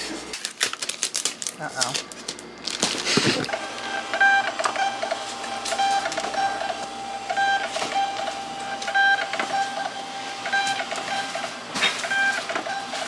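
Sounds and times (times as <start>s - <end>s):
label printer feed whining: 3.2s - 13.0s.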